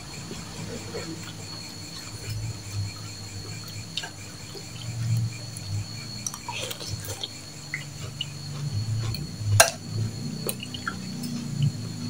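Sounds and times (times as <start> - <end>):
high-pitched background whine: 0.0 - 12.0
soft chewing: 0.2 - 9.4.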